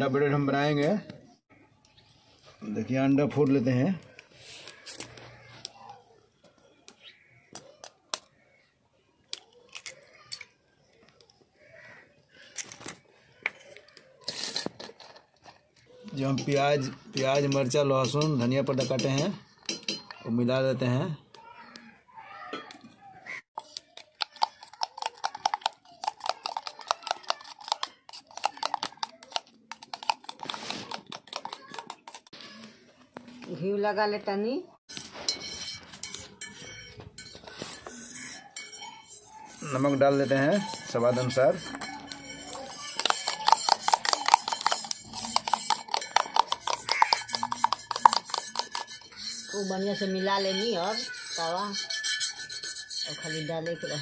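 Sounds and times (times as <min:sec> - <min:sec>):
spoon clinking in metal tumbler: 0:34.9 - 0:54.0.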